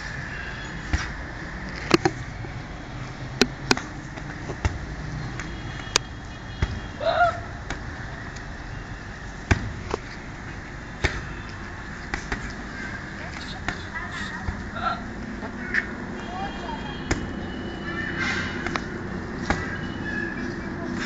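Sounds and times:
person crying out: 0:14.7 - 0:15.1.

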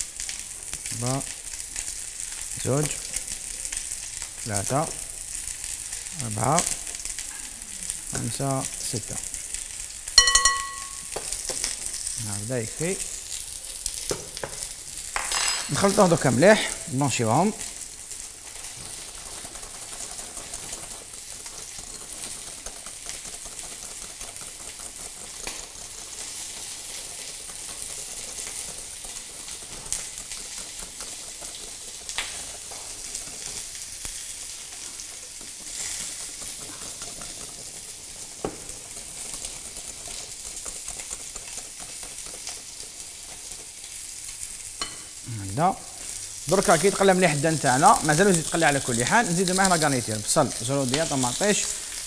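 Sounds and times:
meat sizzling in oil: 0:00.0 - 0:52.0
whisk clinking on glass: 0:10.2 - 0:11.1.

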